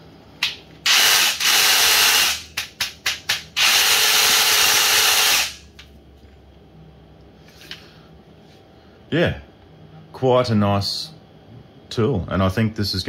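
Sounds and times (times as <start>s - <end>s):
power tool running in bursts: 0.9s - 2.5s, 3.6s - 5.6s.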